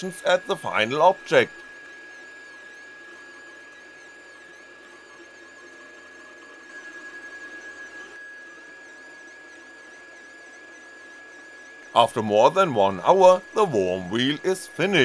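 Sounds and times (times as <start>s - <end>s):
steady high tone: 0.0s - 1.7s, 11.9s - 15.0s
stepper motors whining: 0.0s - 15.0s.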